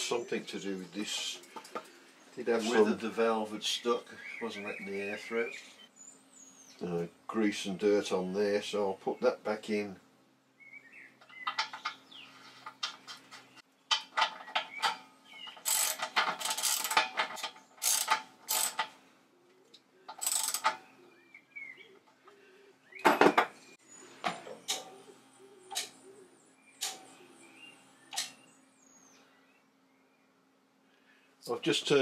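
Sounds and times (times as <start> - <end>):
metallic clicks and rattles: 11.2 - 12.0, 12.6 - 19.0, 20.1 - 20.8.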